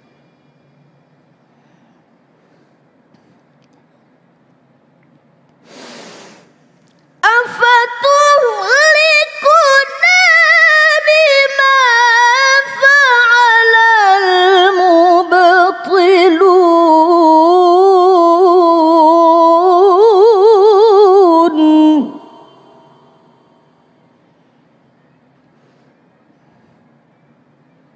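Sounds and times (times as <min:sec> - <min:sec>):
woman reciting melodically: 0:07.2 - 0:23.5.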